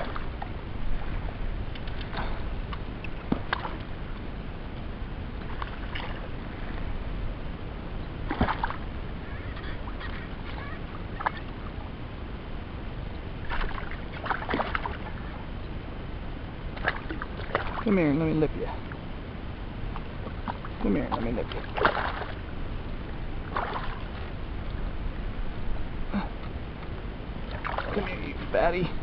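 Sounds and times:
water sloshing and lapping: 0.0 - 4.3, 5.3 - 7.0, 8.2 - 11.9, 13.4 - 15.6, 16.6 - 19.1, 19.8 - 24.9, 26.2 - 29.0
water splashes: 0.0 - 4.3, 5.4 - 6.9, 8.2 - 11.8, 13.4 - 15.5, 16.7 - 19.0, 19.9 - 24.4, 27.4 - 29.0
wind rumble on microphone: 0.0 - 29.0.

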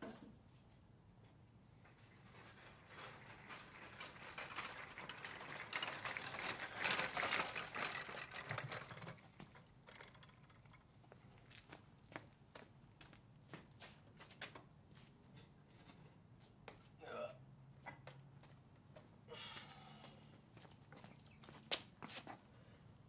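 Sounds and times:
rapid clicking and rattling: 2.2 - 10.9.

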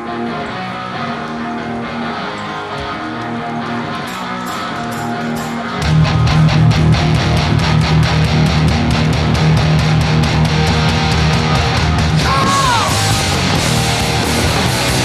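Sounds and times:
electric guitar chords: 0.0 - 15.0
rock band playing: 0.0 - 15.0
heavy bass: 5.8 - 15.0
drums and cymbals: 10.4 - 15.0.

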